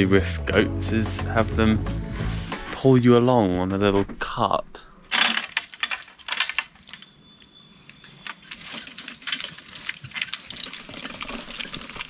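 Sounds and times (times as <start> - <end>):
harness and cart rattling: 5.2 - 12.0.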